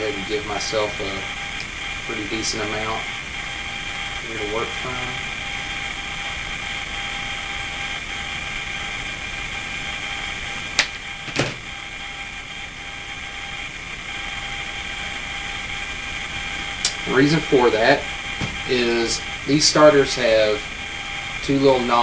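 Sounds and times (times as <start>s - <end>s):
steady high whine: 0.0s - 22.0s.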